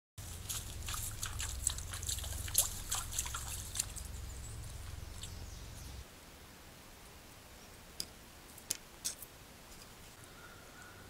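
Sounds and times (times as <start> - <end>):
hooves splashing in water: 0.2 - 6.0
low steady hum: 0.2 - 11.0.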